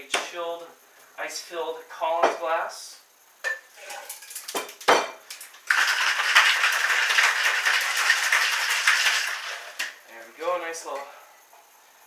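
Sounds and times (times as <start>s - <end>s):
ice rattling in cocktail shaker: 3.8s - 10.0s.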